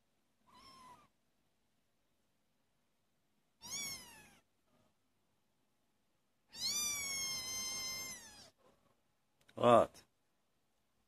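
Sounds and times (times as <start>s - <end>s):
kitten meowing: 0.4s - 1.1s, 3.6s - 4.5s, 6.5s - 8.6s.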